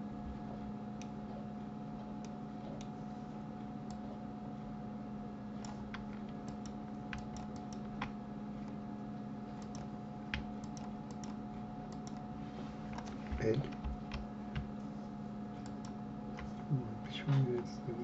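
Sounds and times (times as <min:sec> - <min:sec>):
low electrical hum: 0:00.0 - 0:18.0
keyboard and mouse clicking: 0:05.6 - 0:08.8, 0:09.6 - 0:12.3, 0:15.6 - 0:16.5.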